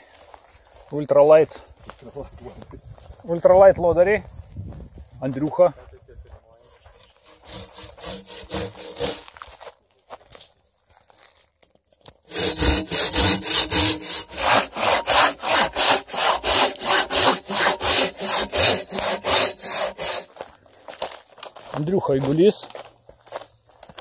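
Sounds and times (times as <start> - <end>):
hand saw cutting a log: 6.6 - 9.5, 12.3 - 20.4.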